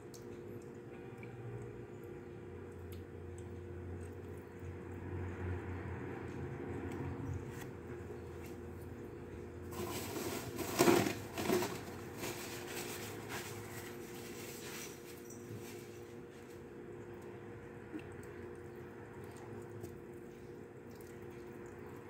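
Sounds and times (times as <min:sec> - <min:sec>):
noodles being chewed: 0:15.9 - 0:22.0.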